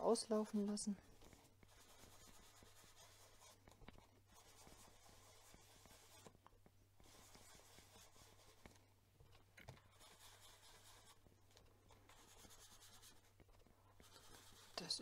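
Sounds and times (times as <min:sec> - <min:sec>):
sponge rubbing on cardstock: 0:01.2 - 0:06.4, 0:07.0 - 0:08.8, 0:09.8 - 0:11.3, 0:11.9 - 0:15.0.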